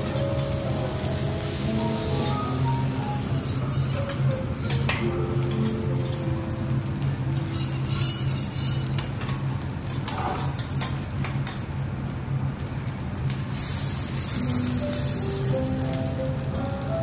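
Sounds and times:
steak sizzling on griddle: 0.0 - 17.0
metal spatulas scraping griddle: 3.2 - 5.0, 7.4 - 10.9.

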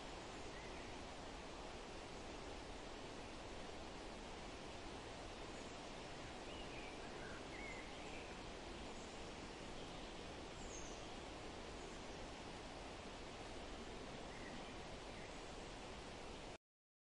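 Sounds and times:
outdoor background hiss: 0.0 - 16.6
faint bird chirps: 0.1 - 1.1, 5.4 - 12.4, 14.2 - 15.7.

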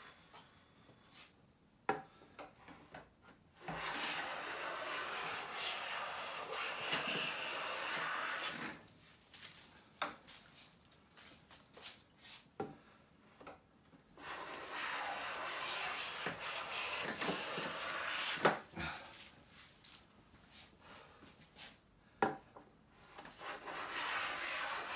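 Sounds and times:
hand plane cutting wood: 3.6 - 8.8, 14.2 - 18.7, 23.2 - 24.9.

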